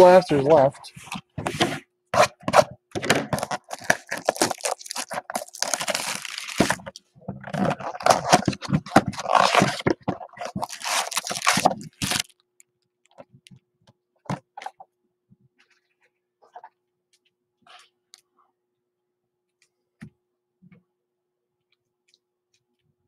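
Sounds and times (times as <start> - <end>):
cardboard box ripping and crinkling: 1.6 - 6.9, 7.5 - 12.3.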